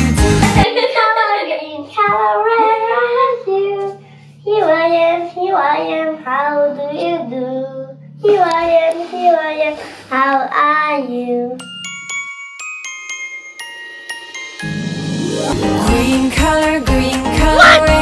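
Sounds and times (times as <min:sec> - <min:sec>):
child singing: 0:00.6 - 0:11.6, 0:15.9 - 0:18.0.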